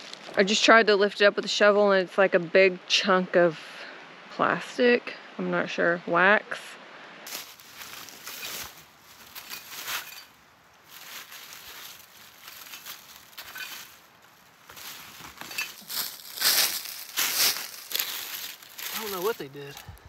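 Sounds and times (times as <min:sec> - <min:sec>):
shovel scraping through charcoal: 0:07.3 - 0:10.3, 0:10.9 - 0:19.8
dry leaves crunching: 0:07.3 - 0:20.0.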